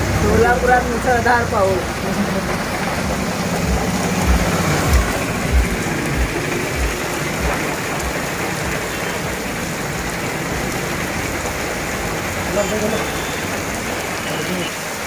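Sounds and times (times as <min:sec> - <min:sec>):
vehicle engine running: 0:00.0 - 0:09.0
heavy rain on a road: 0:00.0 - 0:15.0
low thumps: 0:02.6 - 0:08.2.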